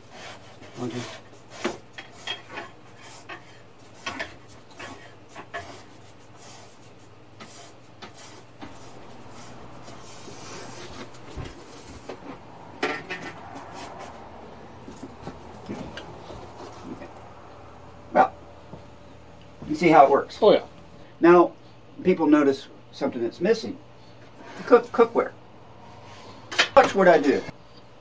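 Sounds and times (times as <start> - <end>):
cardboard panels rubbing and scraping: 0.0 - 12.5.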